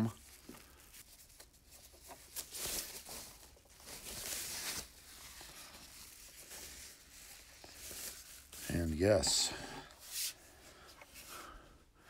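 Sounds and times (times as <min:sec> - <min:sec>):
foam packing wrap rustling: 0:00.0 - 0:09.4.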